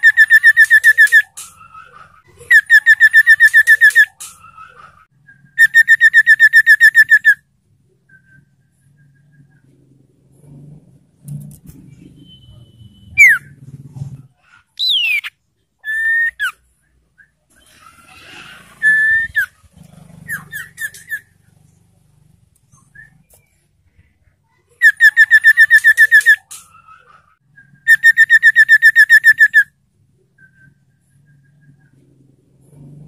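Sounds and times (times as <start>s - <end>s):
bird whistling and trilling: 0.0s - 7.4s, 8.0s - 9.6s, 12.2s - 13.6s, 14.8s - 16.6s, 18.7s - 19.6s, 20.3s - 21.3s, 22.7s - 23.5s, 24.8s - 32.0s.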